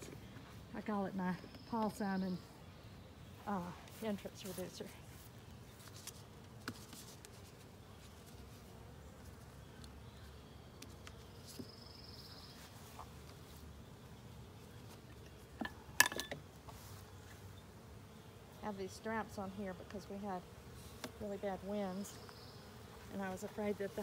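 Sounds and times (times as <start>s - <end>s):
bees buzzing: 0.0s - 24.0s.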